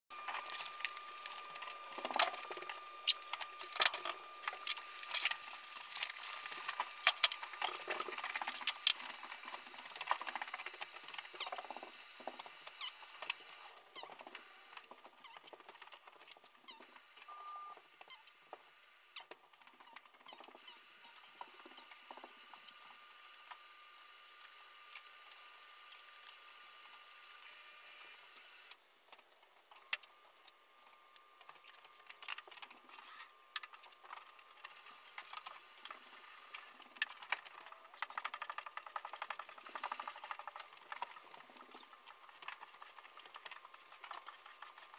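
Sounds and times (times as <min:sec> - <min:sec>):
faint steady high tone: 0:17.2 - 0:18.3.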